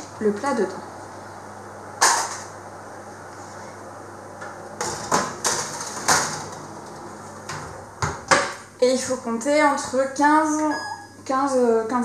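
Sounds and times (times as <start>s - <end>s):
steady low hum: 0.0s - 12.0s
oven door clunking open: 4.8s - 6.7s.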